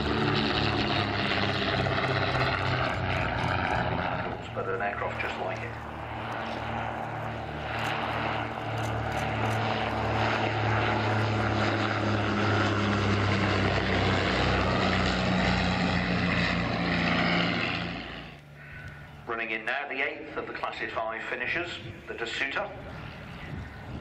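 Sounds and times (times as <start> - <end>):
biplane flying past: 0.0 - 24.0.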